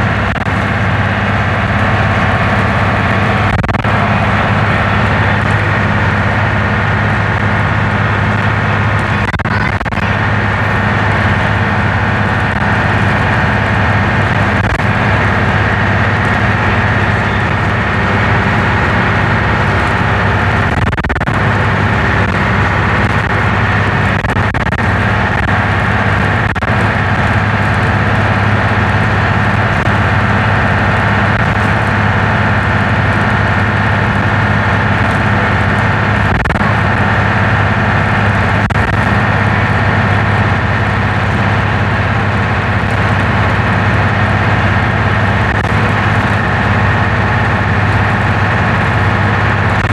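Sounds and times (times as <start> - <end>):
bus diesel engine droning: 0.0 - 49.9
steady high whine: 0.0 - 49.9.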